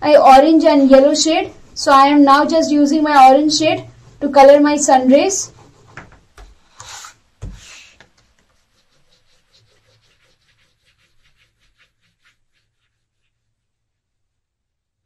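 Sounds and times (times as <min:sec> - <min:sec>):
crayon rubbing on paper: 0:04.8 - 0:06.0, 0:06.7 - 0:13.6
paper sliding and shuffling: 0:05.5 - 0:13.3
thump on drawing board: 0:07.4 - 0:08.2.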